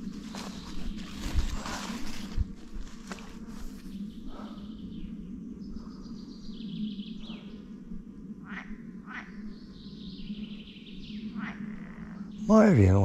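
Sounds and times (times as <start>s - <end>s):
birds singing: 3.7s - 7.8s, 8.4s - 13.0s
frogs calling in chorus: 11.2s - 12.6s.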